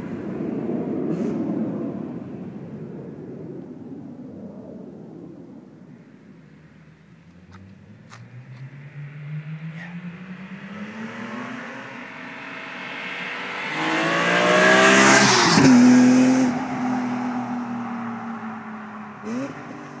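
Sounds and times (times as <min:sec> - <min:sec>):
car accelerating past: 0:07.4 - 0:20.0
engine revving: 0:07.5 - 0:18.4, 0:19.2 - 0:20.0.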